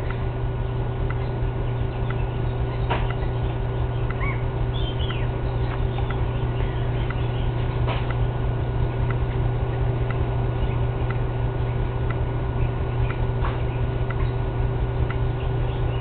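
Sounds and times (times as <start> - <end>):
steady low hum: 0.0 - 16.0
bird chirps: 0.8 - 9.2, 10.4 - 11.9, 15.1 - 16.0
soft ticks: 4.0 - 4.2, 9.0 - 9.4, 12.0 - 12.2, 15.0 - 15.2.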